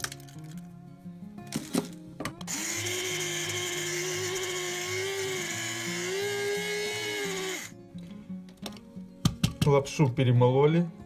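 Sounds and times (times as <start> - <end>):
electric coffee grinder whirring: 2.5 - 7.8.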